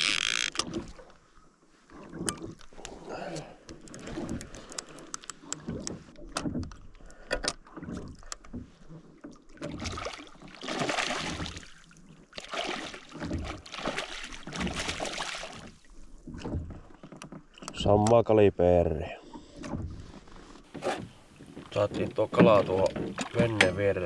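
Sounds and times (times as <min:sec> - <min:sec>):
fish splashing in water: 0:09.6 - 0:16.1.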